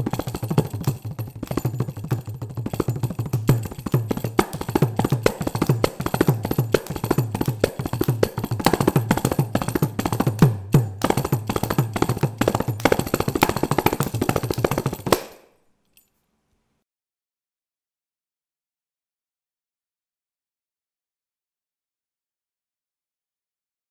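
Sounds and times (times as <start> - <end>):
frame drum played solo: 0.0 - 15.2.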